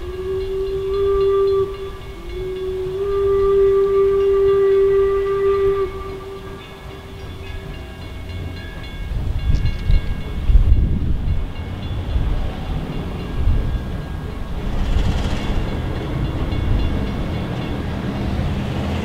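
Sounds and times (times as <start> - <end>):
steam whistle: 0.0 - 8.1
steam locomotive rumbling: 0.0 - 19.0.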